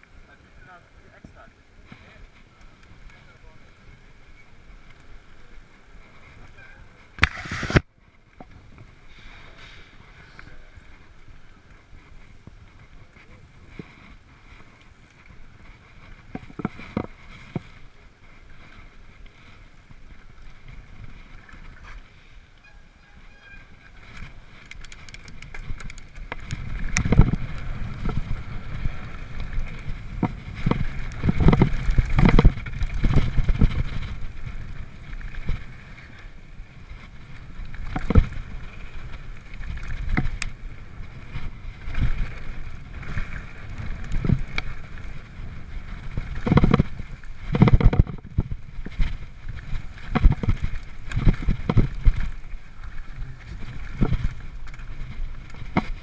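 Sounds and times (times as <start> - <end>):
bike tyres rumbling on dirt trail: 0.0 - 56.0
wind on microphone: 2.0 - 56.0
bike frame and chain clattering: 23.1 - 28.8.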